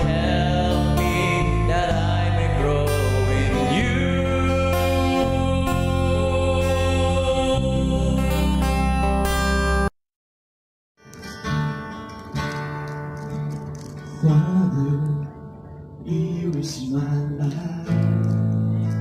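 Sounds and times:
person singing: 0:00.0 - 0:09.2, 0:14.1 - 0:19.0
strummed acoustic guitar: 0:00.0 - 0:09.9, 0:11.0 - 0:19.0.

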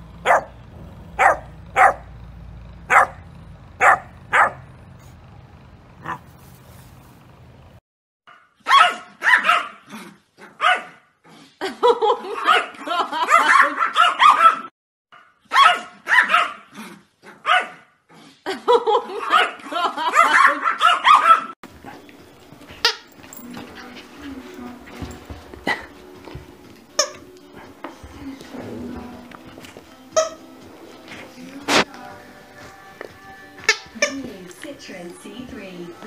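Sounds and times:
dog barking sharply: 0:00.2 - 0:00.5, 0:01.2 - 0:02.1, 0:02.9 - 0:03.2, 0:03.8 - 0:04.6, 0:08.3 - 0:09.8, 0:10.6 - 0:11.0, 0:12.4 - 0:12.7, 0:13.3 - 0:14.7, 0:15.5 - 0:16.6, 0:17.4 - 0:17.8, 0:19.2 - 0:21.5
small dogs yapping: 0:00.2 - 0:02.1, 0:02.8 - 0:05.2, 0:06.0 - 0:06.4, 0:08.3 - 0:11.0, 0:12.4 - 0:14.7, 0:15.5 - 0:17.8, 0:19.2 - 0:22.0, 0:33.6 - 0:34.2.

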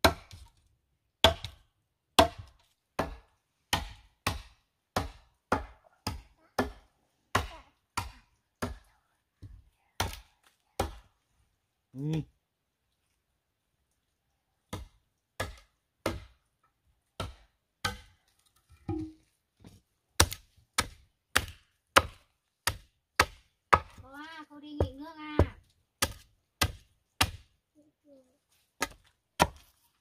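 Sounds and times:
machete chopping wooden log: 0:00.0 - 0:00.5, 0:01.2 - 0:08.8, 0:10.0 - 0:11.1, 0:14.7 - 0:16.4, 0:17.2 - 0:18.2, 0:20.2 - 0:24.0, 0:24.8 - 0:27.5, 0:28.8 - 0:29.8.

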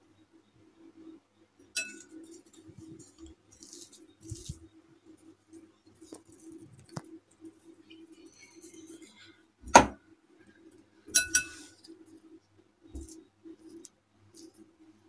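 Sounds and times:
faint steady hum: 0:00.0 - 0:15.0
glass bowl clinking: 0:01.8 - 0:02.2, 0:11.1 - 0:11.6
plastic mould clicks and rustles: 0:06.0 - 0:07.2.

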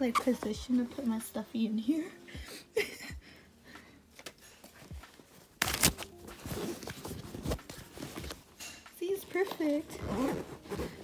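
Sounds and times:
fabric rustling and rubbing: 0:04.7 - 0:11.0.

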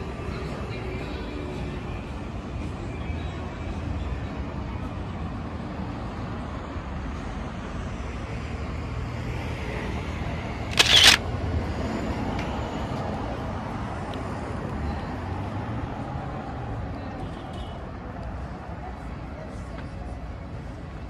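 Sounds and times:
passing traffic hum: 0:04.3 - 0:17.1
sharp noisy burst: 0:10.7 - 0:11.2.

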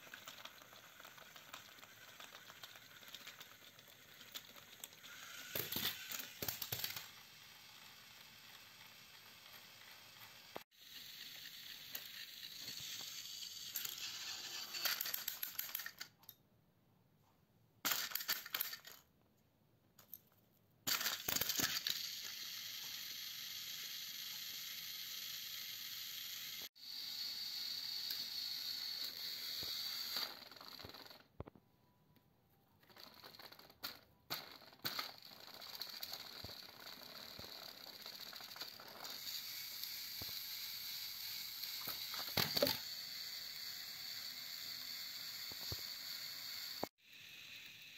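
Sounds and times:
toy train motors whirring: 0:00.0 - 0:16.4, 0:17.8 - 0:19.1, 0:20.9 - 0:31.5, 0:32.8 - 0:47.9.

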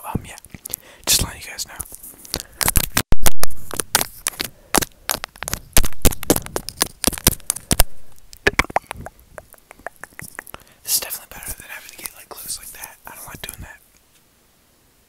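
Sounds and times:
teeth clicking on a stick: 0:06.6 - 0:10.6.

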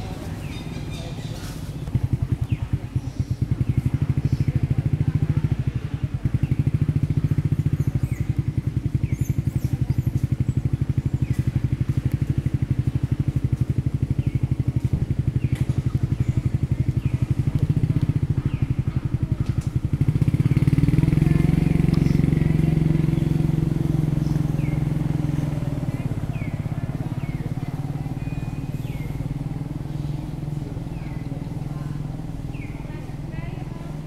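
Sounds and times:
engine idling: 0:00.0 - 0:34.0.

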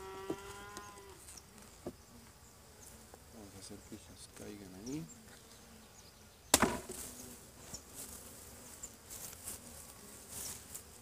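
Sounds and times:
bees buzzing: 0:00.0 - 0:11.0.

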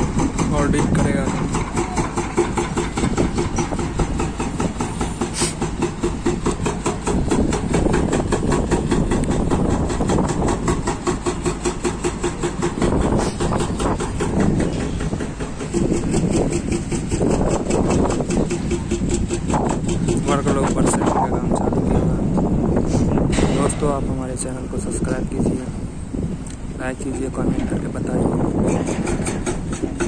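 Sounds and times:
hydraulic rock breaker hammering: 0:00.0 - 0:21.1, 0:28.4 - 0:30.0
heavy diesel engines running: 0:00.0 - 0:30.0.

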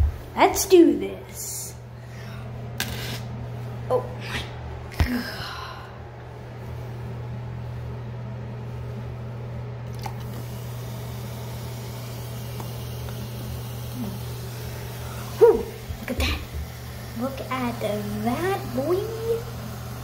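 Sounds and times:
low hum: 0:01.2 - 0:20.0
person crying out: 0:15.3 - 0:15.8.

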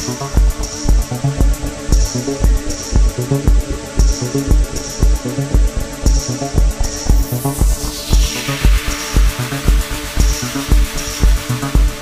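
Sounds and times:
heavy kick drum: 0:00.0 - 0:12.0.

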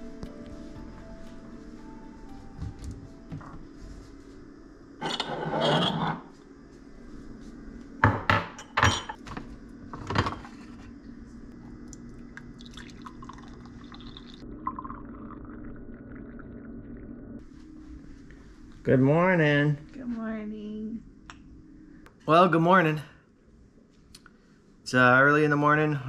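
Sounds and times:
coffee pouring into mug: 0:11.6 - 0:17.3
mug and glass carafe clinking: 0:12.6 - 0:15.4.

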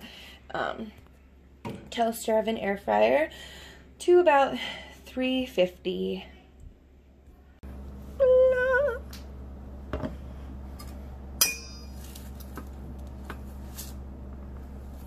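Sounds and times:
steady low hum: 0:03.2 - 0:15.0
wire whisk clinking on steel bowl: 0:11.4 - 0:12.0.

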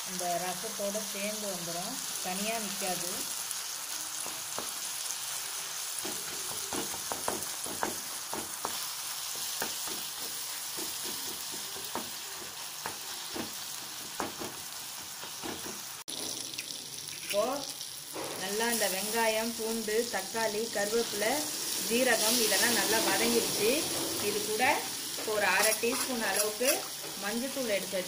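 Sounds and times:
vegetables sizzling in hot oil: 0:00.0 - 0:28.0.

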